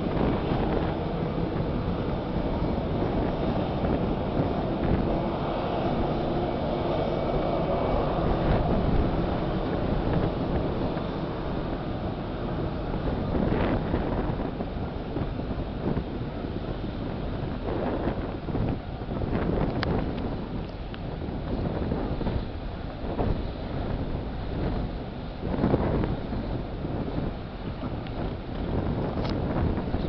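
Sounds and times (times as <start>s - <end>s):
distant jet engines rumbling: 0.0s - 30.0s
wind buffeting microphone: 0.0s - 30.0s.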